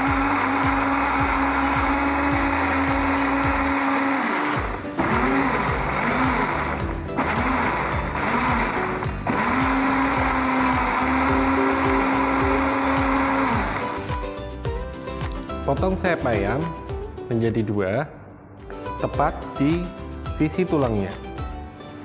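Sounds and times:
electric blender running: 0.0s - 14.2s.

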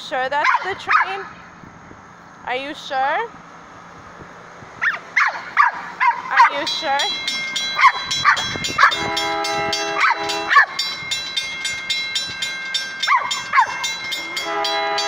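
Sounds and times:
railroad crossing bell ringing: 6.2s - 15.0s
train horn: 8.4s - 10.8s, 13.3s - 15.0s.

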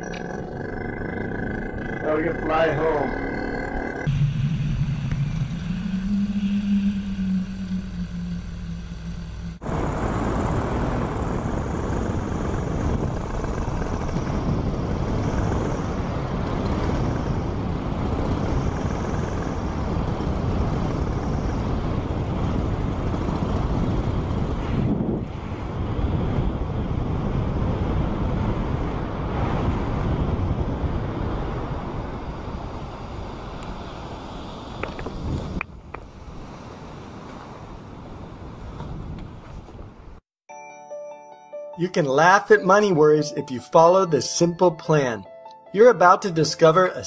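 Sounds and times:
paramotor engine and propeller: 0.0s - 40.2s
wind on microphone: 4.0s - 40.2s.

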